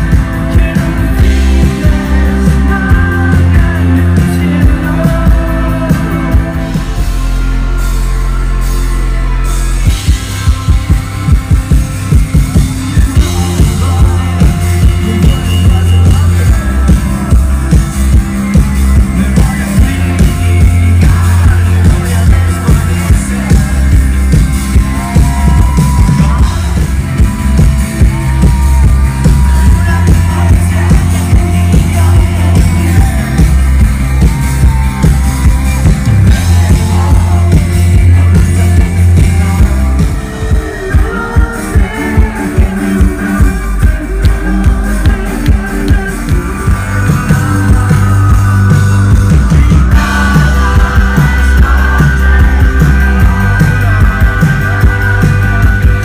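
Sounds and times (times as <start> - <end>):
person singing: 0.0 - 8.4, 9.8 - 56.0
live rock band playing: 0.0 - 56.0.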